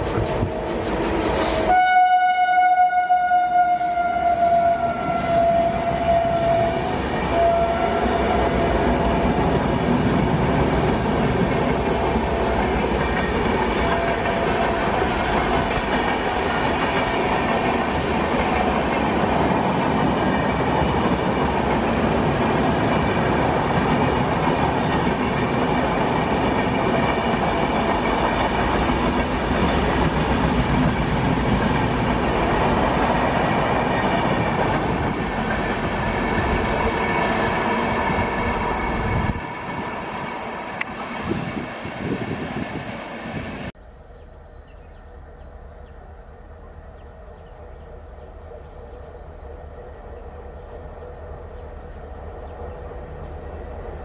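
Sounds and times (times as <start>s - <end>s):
train wheels rumbling on rails: 0.0s - 1.9s, 3.8s - 43.7s
train horn: 1.3s - 9.5s, 13.6s - 15.9s.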